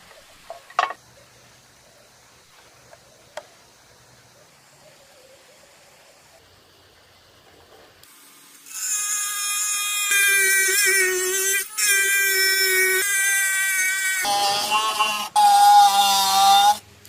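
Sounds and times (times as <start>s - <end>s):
rotary tool cutting plastic: 8.0s - 16.8s.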